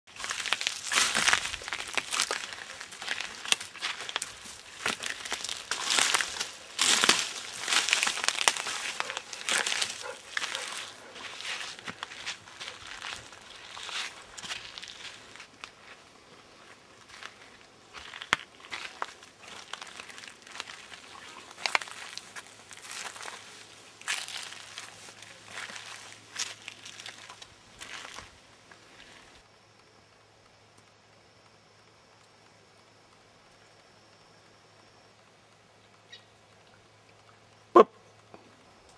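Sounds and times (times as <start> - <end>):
footsteps crunching through leaves: 0.1 - 29.4
twigs snapping: 0.2 - 15.8, 17.9 - 23.4, 24.0 - 28.3.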